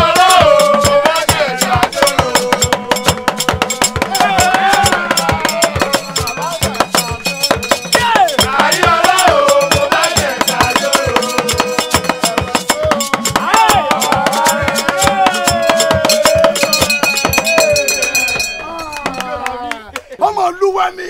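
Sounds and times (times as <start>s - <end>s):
men singing a church chorus: 0.0s - 18.4s
hand bells clanking: 0.0s - 19.7s.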